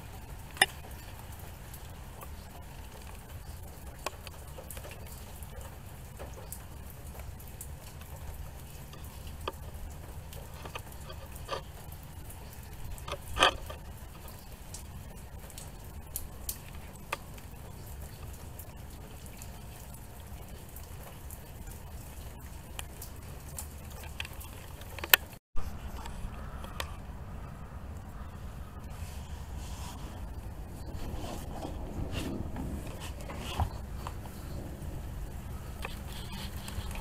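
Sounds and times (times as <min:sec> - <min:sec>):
rain dripping and pattering: 0:00.0 - 0:37.0
low steady rumble: 0:25.6 - 0:37.0.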